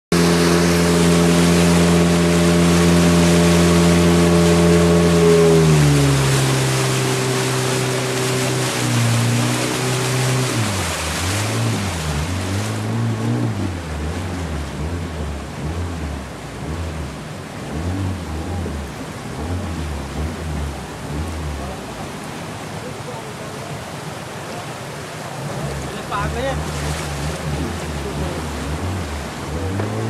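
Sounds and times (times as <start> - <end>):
boat motor running: 0.1 - 30.0
rushing water: 0.1 - 30.0
wind: 0.1 - 30.0.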